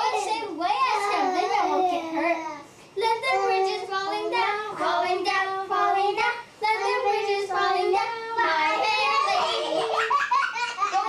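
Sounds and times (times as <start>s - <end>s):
children singing: 3.0s - 10.0s.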